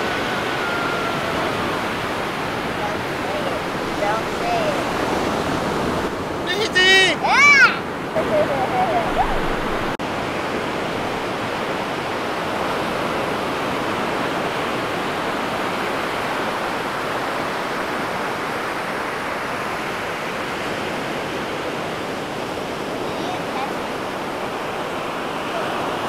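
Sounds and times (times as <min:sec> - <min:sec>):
ocean surf breaking: 0:00.0 - 0:26.0.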